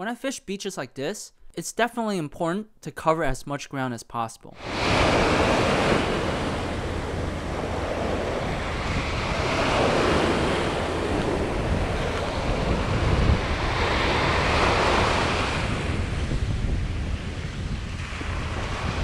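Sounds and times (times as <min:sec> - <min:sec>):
waves breaking on beach: 0:04.6 - 0:19.0
wind buffeting microphone: 0:04.6 - 0:19.0.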